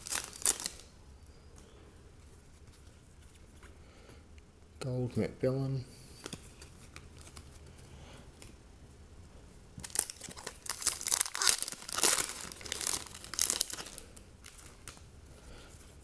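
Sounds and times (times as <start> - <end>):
foil wrapper tearing and crinkling: 0.0 - 0.9, 9.8 - 15.0.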